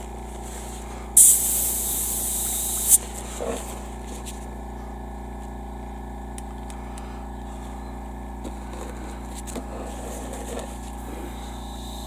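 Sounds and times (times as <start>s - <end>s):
airbrush compressor humming: 0.0s - 4.8s, 8.4s - 12.0s.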